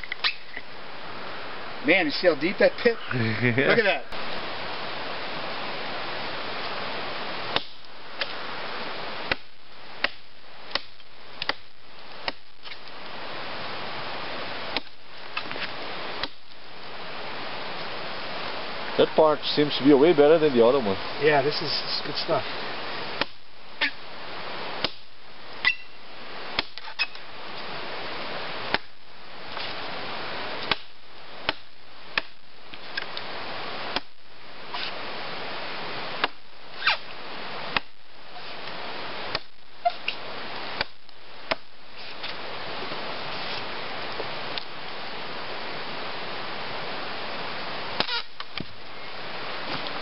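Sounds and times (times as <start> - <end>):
blade chopping into log: 7.6 - 8.3, 26.6 - 26.9.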